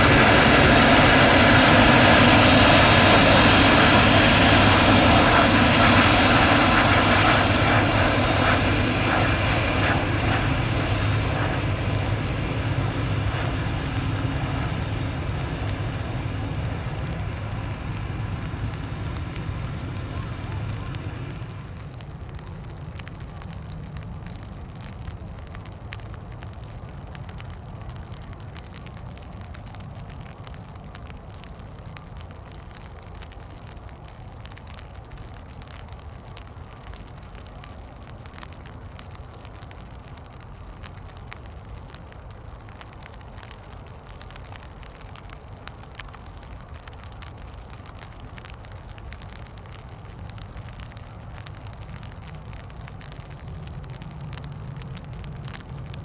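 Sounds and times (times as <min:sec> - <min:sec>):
jet engines roaring: 0:00.0 - 0:22.0
wind buffeting microphone: 0:00.0 - 0:22.4
light raindrops ticking: 0:00.0 - 0:56.0.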